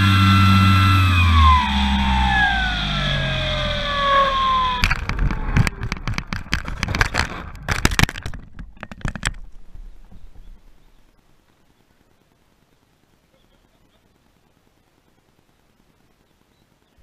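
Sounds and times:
model airplane motor whine: 0.0s - 6.2s
plane clattering along pavement: 3.9s - 11.0s.

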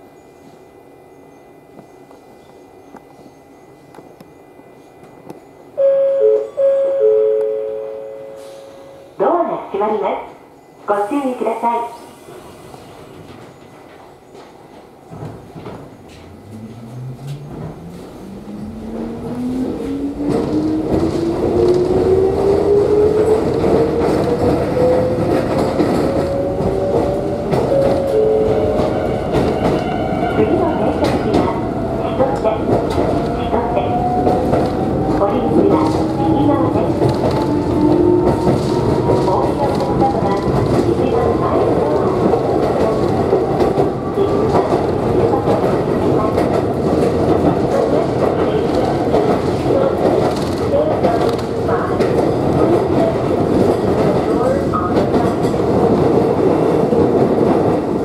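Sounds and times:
wheels rumbling and clattering on rail: 12.2s - 58.0s
train traction motors whining: 16.1s - 40.5s.

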